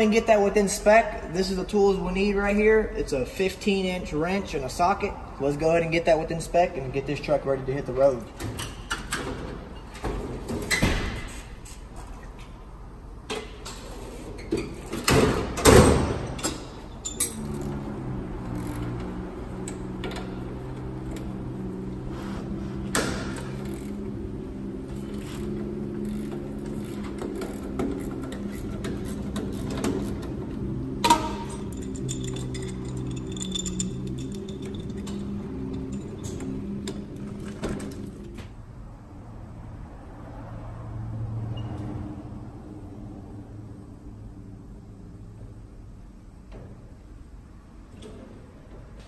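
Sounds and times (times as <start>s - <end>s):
wrench clicks: 31.0s - 37.0s
metal tools clanking in drawer: 31.0s - 38.1s.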